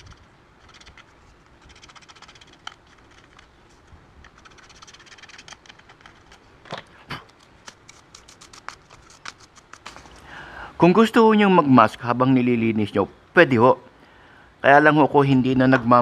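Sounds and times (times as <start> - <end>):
screwdriver scraping plastic: 0.0 - 6.4, 7.3 - 10.2.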